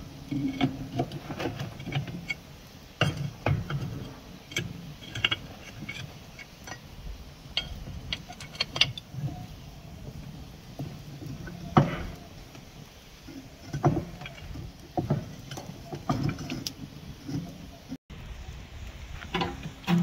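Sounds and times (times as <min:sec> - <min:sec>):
wood fire crackling: 0:00.0 - 0:20.0
bricks and sticks knocking: 0:13.8 - 0:16.8.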